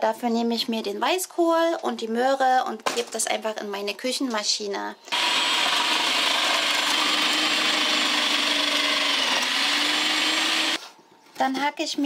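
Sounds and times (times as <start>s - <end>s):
food processor motor whine: 5.1s - 10.8s.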